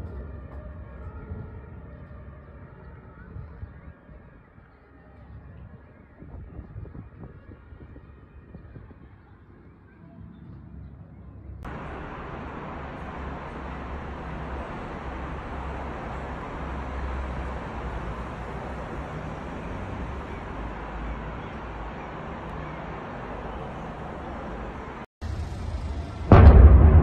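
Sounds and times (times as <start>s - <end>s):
distant road traffic rumble: 11.4s - 27.0s.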